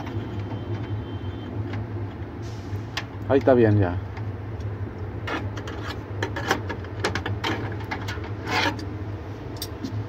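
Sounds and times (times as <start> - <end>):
clicks and scrapes on metal parts: 4.6 - 10.0.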